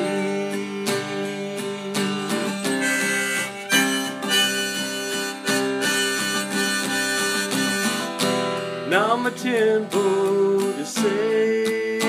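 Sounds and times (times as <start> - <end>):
harmonica melody: 0.0 - 9.1
strummed acoustic guitar: 0.0 - 12.0.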